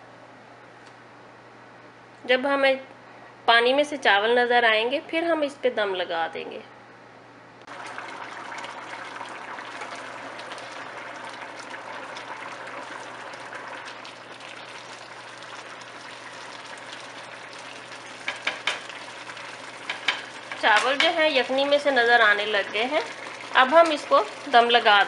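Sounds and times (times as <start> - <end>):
rice boiling with bubbling hiss: 7.6 - 25.0.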